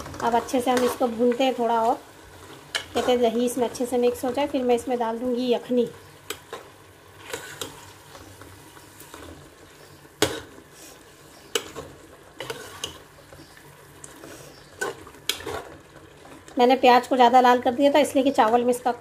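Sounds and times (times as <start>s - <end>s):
masala sizzling: 0.0s - 19.0s
spoon scraping metal pot: 7.2s - 8.0s, 11.5s - 13.0s.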